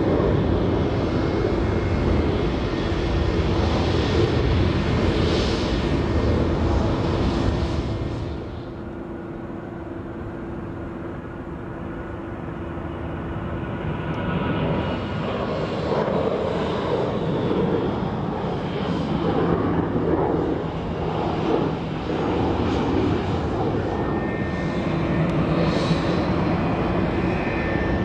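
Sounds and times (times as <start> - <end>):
jet engines humming: 0.0 - 28.0.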